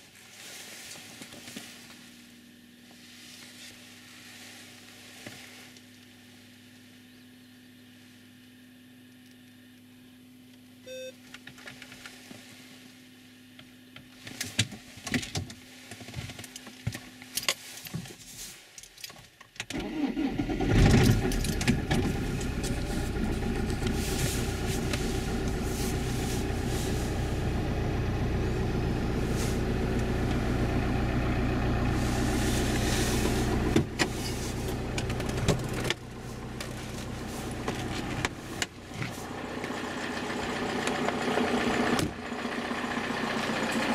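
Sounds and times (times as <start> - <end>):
diesel engine cranking and idling: 19.6 - 43.9.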